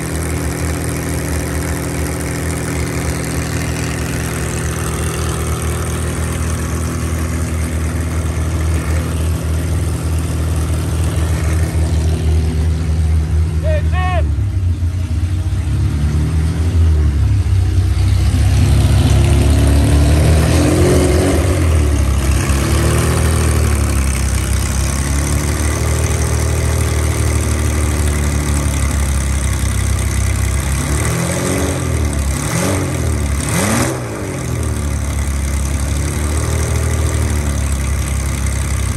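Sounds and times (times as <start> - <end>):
car engine idling and revving: 0.0 - 38.9.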